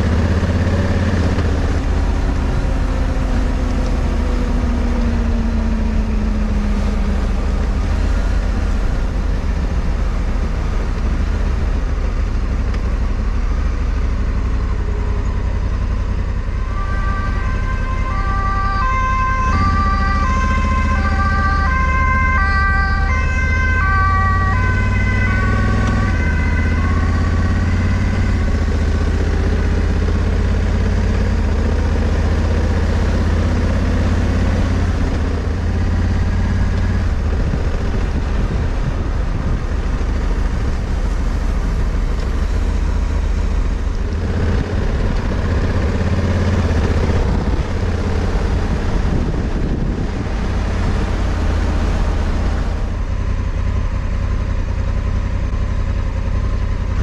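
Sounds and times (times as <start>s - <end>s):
two-tone emergency siren: 0.0s - 12.4s, 14.1s - 55.3s
motorcycle engine running: 0.0s - 57.0s
wind noise: 33.9s - 41.6s, 43.8s - 53.0s.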